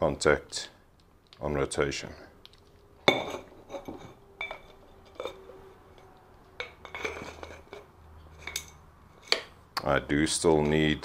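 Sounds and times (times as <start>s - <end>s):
hard parts clinking and knocking: 3.0s - 9.6s.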